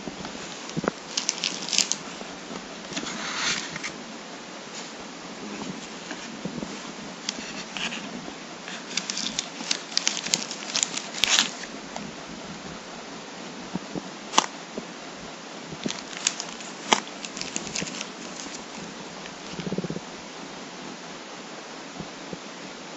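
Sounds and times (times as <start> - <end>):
plastic packaging crinkling: 0.0 - 4.0, 7.2 - 12.1, 14.3 - 14.5, 15.8 - 19.8.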